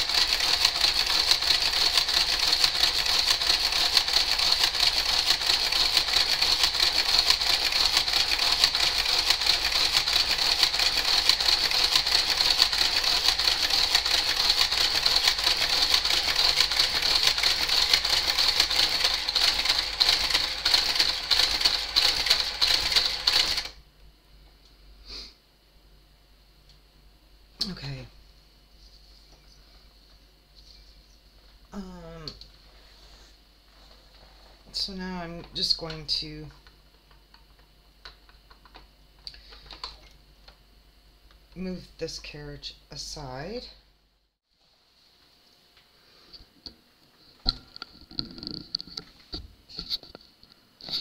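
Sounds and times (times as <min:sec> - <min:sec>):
rapid knitting machine clicking: 0:00.0 - 0:23.8.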